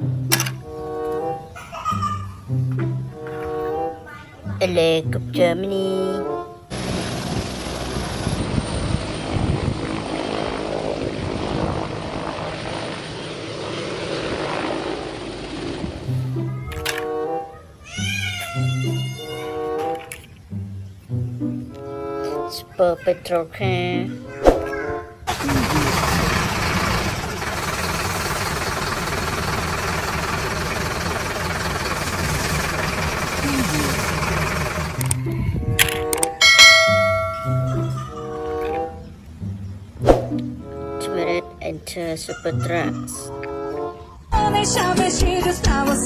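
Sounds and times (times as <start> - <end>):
truck engine running: 6.7 - 16.6, 25.3 - 38.4
helicopter hovering: 6.7 - 17.5, 23.7 - 39.0.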